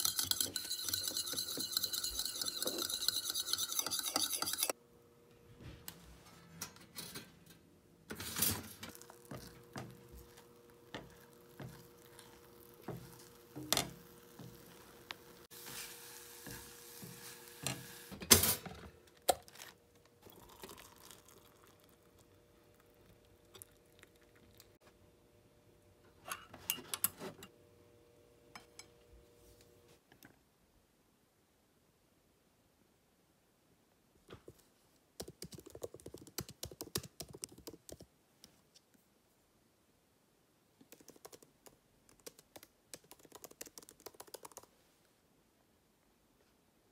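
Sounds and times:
utensils clinking on pan and dishes: 0.0s - 4.8s
faint steady hum: 0.0s - 35.2s
food sizzling: 8.9s - 18.2s.

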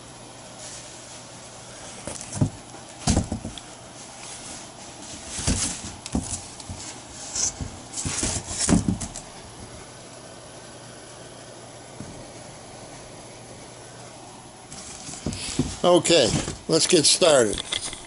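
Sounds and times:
cardboard box scrapes and knocks: 4.3s - 9.1s, 14.7s - 16.6s.

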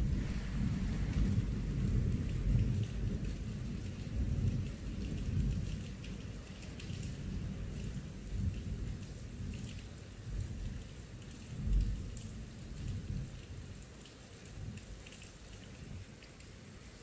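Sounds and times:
thunder rumbling: 0.0s - 5.8s
heavy rain hiss: 0.0s - 17.0s.

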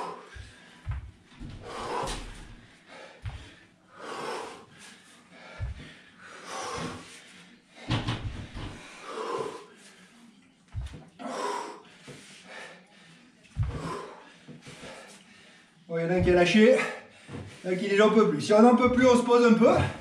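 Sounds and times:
man breathing hard: 0.0s - 10.1s, 11.2s - 17.7s
bare feet thudding on floor: 0.3s - 3.6s, 5.5s - 6.0s, 10.7s - 11.1s, 13.6s - 14.0s, 16.1s - 16.6s, 18.8s - 19.2s.

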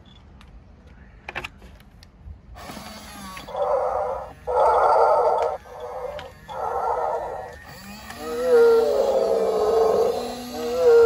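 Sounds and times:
toy motor and gears whirring: 2.6s - 11.0s
hippo calls from toy speaker: 3.5s - 11.0s.

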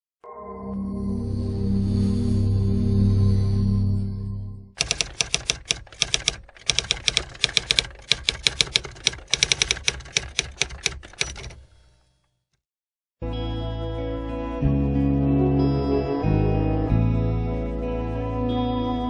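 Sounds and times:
typewriter key clacks: 4.8s - 11.7s.

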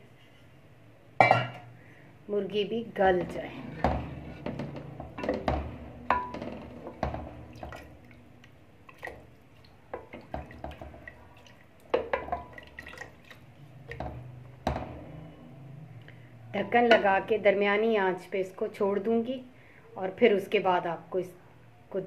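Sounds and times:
liquid sloshing and dripping: 6.2s - 14.9s.

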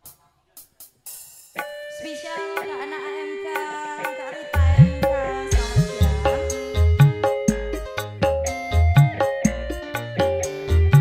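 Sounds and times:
electric guitar notes: 1.6s - 11.0s
sustained keyboard notes: 1.6s - 11.0s
bass: 4.6s - 11.0s.

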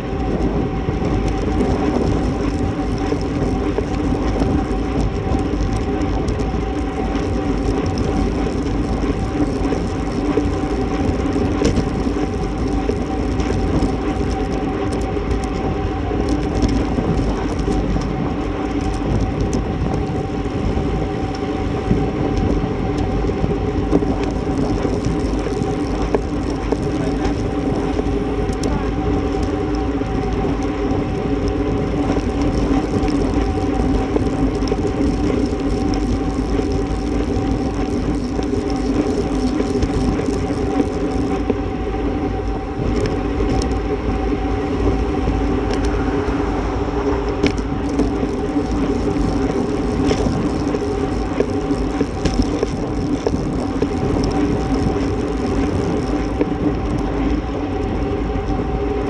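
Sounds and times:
held hum: 0.0s - 59.0s
tyre rumble: 0.0s - 59.0s
wind rush: 0.0s - 59.0s
faint clicks: 47.0s - 57.9s.

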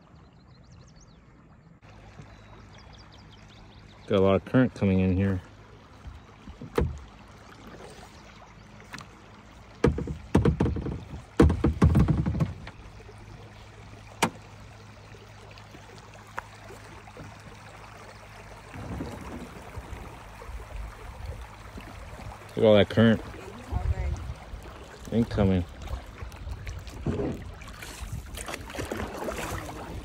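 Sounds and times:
rushing water: 1.8s - 30.0s
kayak knocks and thumps: 6.0s - 7.9s, 8.8s - 13.0s, 14.1s - 14.6s, 18.6s - 20.1s, 25.8s - 30.0s.

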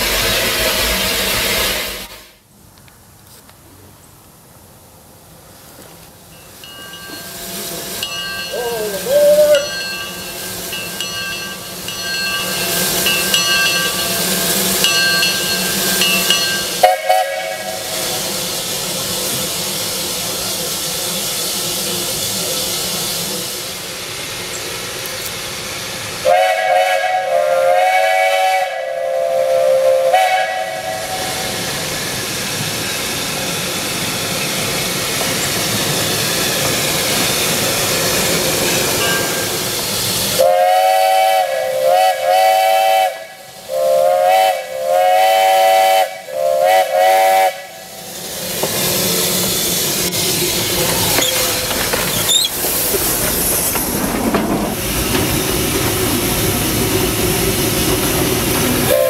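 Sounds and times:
steam hissing: 0.0s - 2.5s, 5.6s - 59.0s
steam locomotive whistle: 7.4s - 10.5s, 12.2s - 18.7s, 26.2s - 31.8s, 40.3s - 48.2s, 58.8s - 59.0s.

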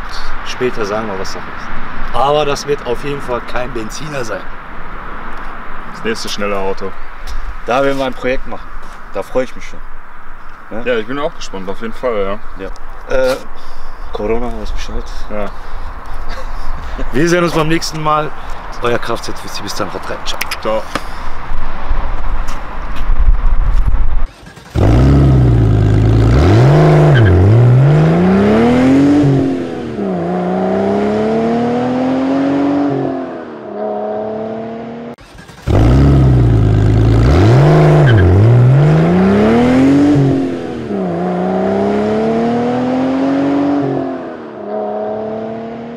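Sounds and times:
car engine accelerating through gears: 24.2s - 45.9s.

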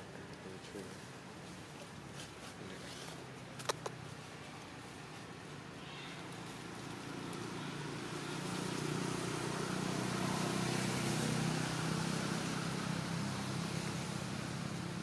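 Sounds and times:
vehicle engine humming: 3.4s - 15.0s.

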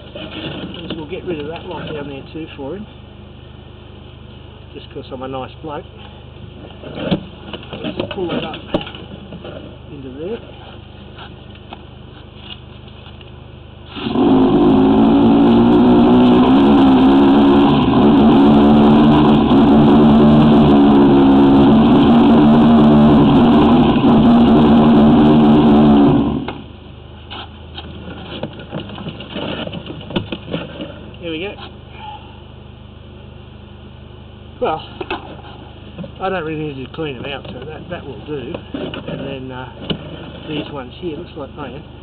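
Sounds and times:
water jet blasting: 13.9s - 26.5s
pump engine under load: 13.9s - 26.7s.

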